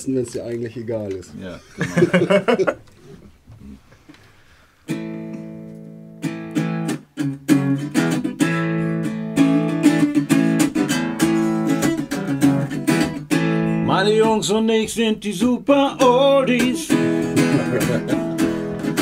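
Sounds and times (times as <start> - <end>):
acoustic guitar strumming chords: 4.9 - 19.0.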